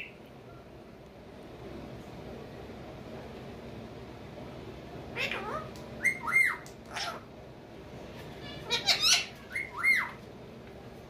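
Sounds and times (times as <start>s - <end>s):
parakeets squawking: 5.2s - 7.3s, 8.4s - 10.2s.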